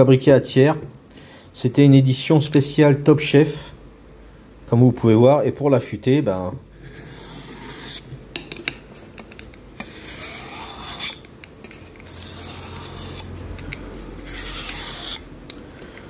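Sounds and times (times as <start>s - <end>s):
knife rasping on honing steel: 6.8s - 8.1s, 9.8s - 15.3s.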